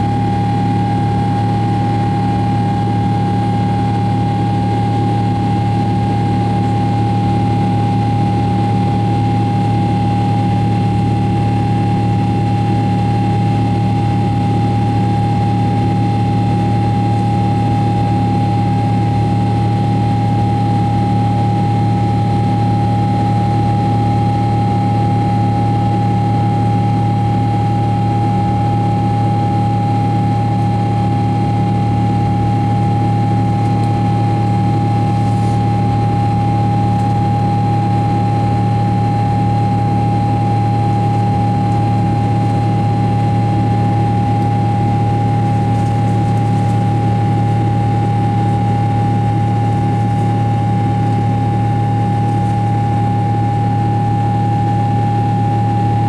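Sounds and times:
constant engine whine: 0:00.0 - 0:56.0
jet engine cabin noise: 0:23.1 - 0:56.0.

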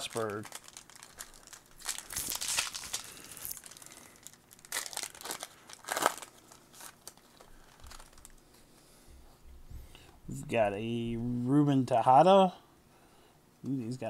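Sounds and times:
foil wrapper crinkling and tearing: 0:00.0 - 0:08.4.

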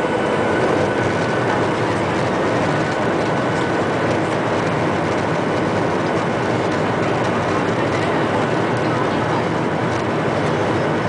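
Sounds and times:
jet engines heard from cabin: 0:00.0 - 0:11.0.

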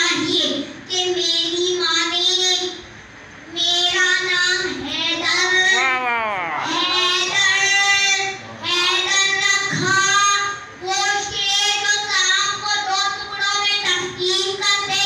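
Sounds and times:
boy singing into a microphone: 0:03.6 - 0:15.0.

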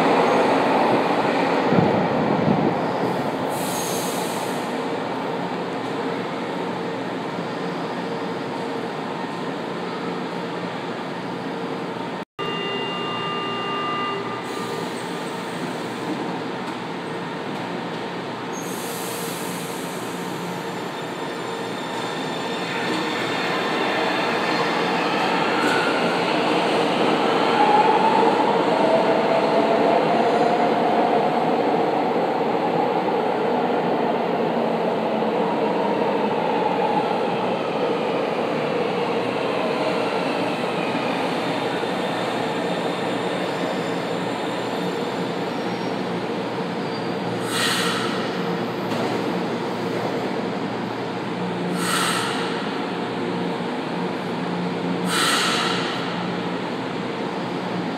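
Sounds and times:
subway train running: 0:00.0 - 0:57.9
train slowing to a stop: 0:00.0 - 0:57.9.

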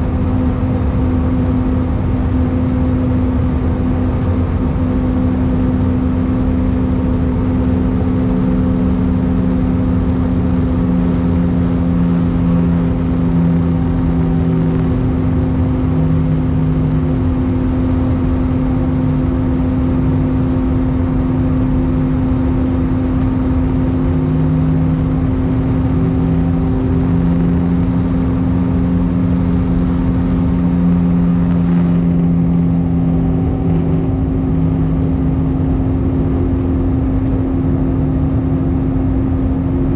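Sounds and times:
constant low hum: 0:00.0 - 0:39.9
jet engine drone: 0:00.0 - 0:39.9
wavering low hum: 0:00.0 - 0:39.9
airflow rushing: 0:23.1 - 0:37.9.

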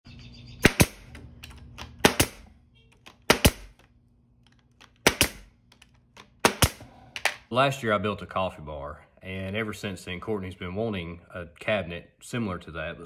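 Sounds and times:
nail gun firing into wood: 0:00.6 - 0:01.2, 0:01.8 - 0:02.4, 0:03.2 - 0:03.8, 0:05.0 - 0:05.5, 0:06.4 - 0:06.8.

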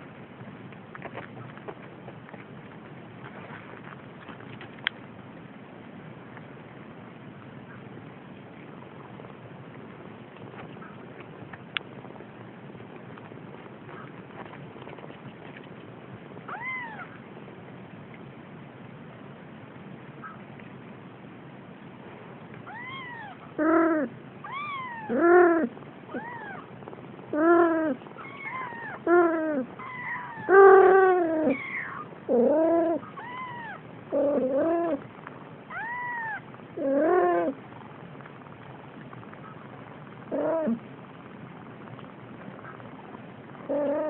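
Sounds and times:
kittens mewing: 0:16.4 - 0:17.2, 0:22.6 - 0:35.1, 0:35.7 - 0:37.6, 0:40.2 - 0:40.9, 0:43.6 - 0:44.0.

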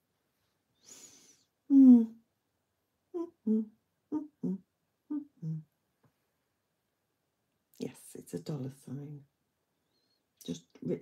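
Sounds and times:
woman humming: 0:01.7 - 0:02.2, 0:03.2 - 0:05.7.

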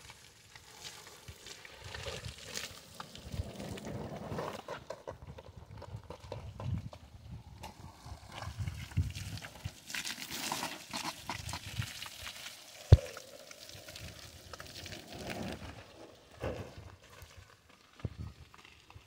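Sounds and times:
water splashing on gravel: 0:00.0 - 0:03.9, 0:08.4 - 0:15.9
hose water spraying on car: 0:08.5 - 0:15.5.

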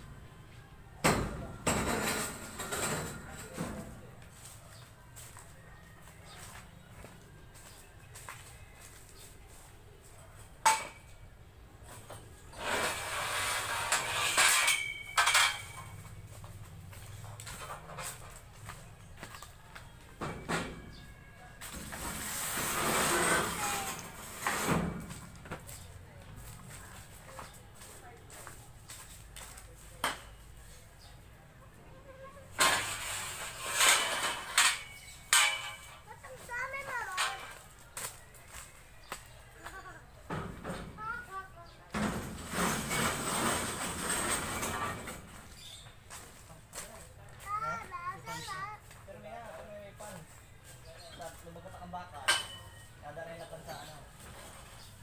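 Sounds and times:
metal scraping: 0:01.5 - 0:04.0, 0:11.9 - 0:16.3, 0:21.6 - 0:25.4, 0:32.0 - 0:37.7, 0:42.0 - 0:45.9
metal clanking and ringing: 0:14.0 - 0:16.0, 0:33.8 - 0:36.0.

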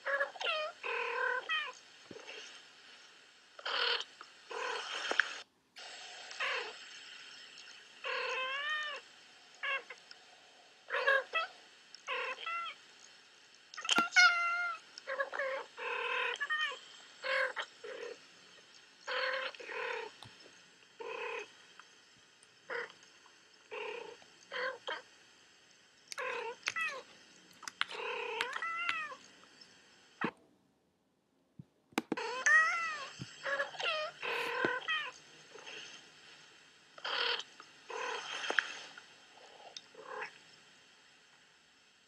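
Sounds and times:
cats meowing: 0:27.9 - 0:29.2, 0:32.2 - 0:35.2.

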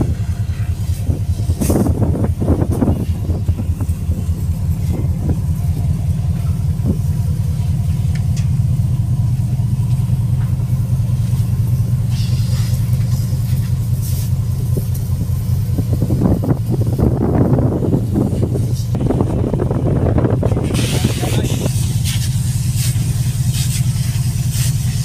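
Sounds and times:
wind buffeting microphone: 0:00.0 - 0:09.4, 0:11.8 - 0:23.3.

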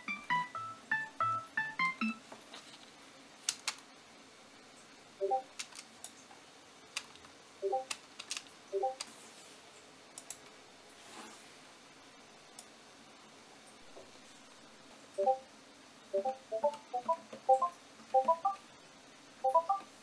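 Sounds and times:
keyboard and mouse clicks: 0:03.5 - 0:03.8, 0:05.3 - 0:06.2, 0:07.0 - 0:09.1.

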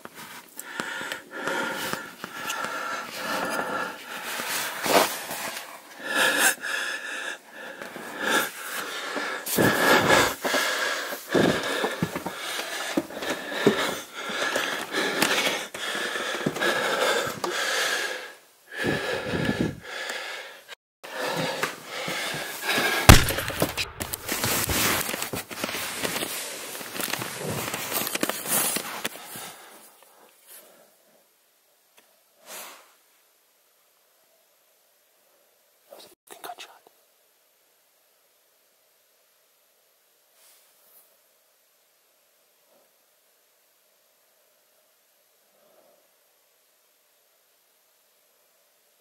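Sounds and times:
person breathing heavily: 0:00.6 - 0:25.2.

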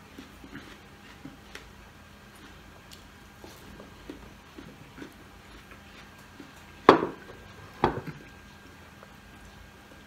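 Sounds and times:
wet chewing and mouth clicks: 0:00.0 - 0:09.1
tableware knocking on wooden table: 0:06.9 - 0:07.2, 0:07.8 - 0:08.1.

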